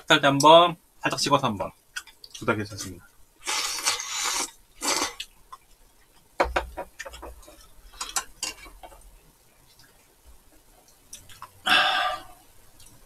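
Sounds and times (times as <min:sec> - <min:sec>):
noisy slurps: 0:03.4 - 0:05.3.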